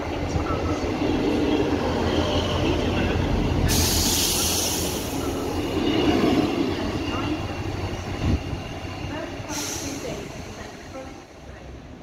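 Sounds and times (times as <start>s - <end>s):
coaches rumbling on rails: 0.0s - 12.0s
diesel train engine humming: 0.0s - 12.0s
loud hiss: 3.6s - 5.2s.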